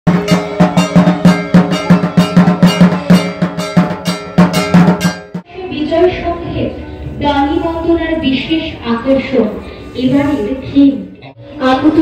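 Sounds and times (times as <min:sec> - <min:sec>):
fast percussive beat: 0:00.1 - 0:05.5.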